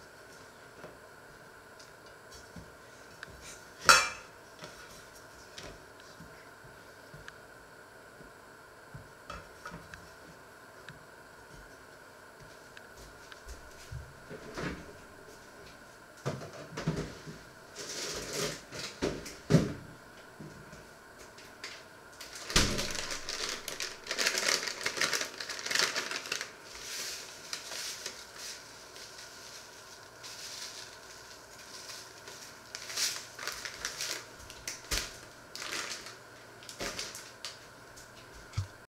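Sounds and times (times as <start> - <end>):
paper bag crinkling and rustling: 21.6 - 37.7.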